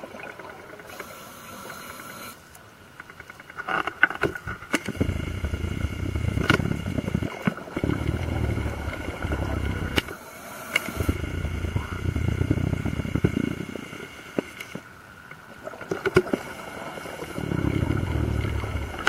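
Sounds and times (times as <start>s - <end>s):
diver's exhaled bubbles rumbling: 4.9s - 10.2s, 10.9s - 14.0s, 16.8s - 19.0s.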